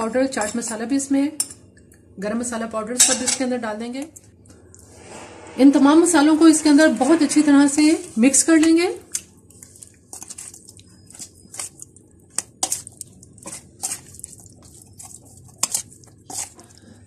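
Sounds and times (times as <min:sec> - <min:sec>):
spoon scraping metal bowl: 0:04.7 - 0:17.0
wet squelches of mixing meat: 0:07.6 - 0:17.0.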